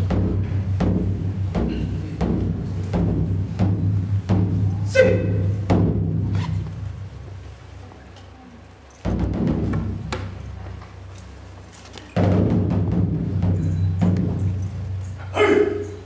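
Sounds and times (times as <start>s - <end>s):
taiko drums struck with sticks: 0.0s - 7.2s, 9.0s - 10.7s, 12.2s - 15.9s
deep boom of large drum: 5.6s - 6.4s, 12.2s - 14.4s.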